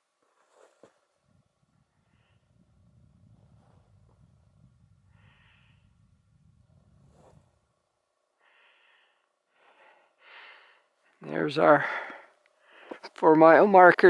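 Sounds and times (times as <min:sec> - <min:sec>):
low rumble: 0:01.2 - 0:08.0
soft breathing: 0:01.8 - 0:04.2, 0:04.9 - 0:07.7, 0:08.3 - 0:13.2.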